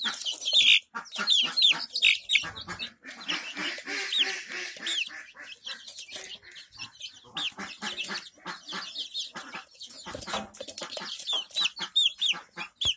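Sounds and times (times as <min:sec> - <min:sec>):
chicks chirping: 0:00.0 - 0:12.9
chicks pecking at grain: 0:00.0 - 0:12.9
soft clucks: 0:00.0 - 0:12.9.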